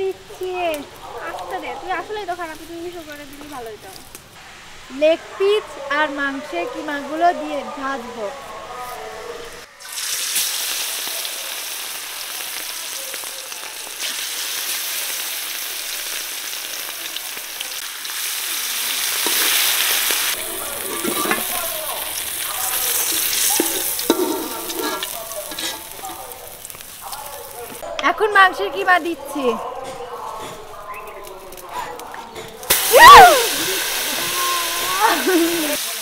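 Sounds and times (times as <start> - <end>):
chicken sizzling in hot oil: 9.6 - 27.8, 32.7 - 36.0
metal spatula scraping a wok: 19.2 - 26.8.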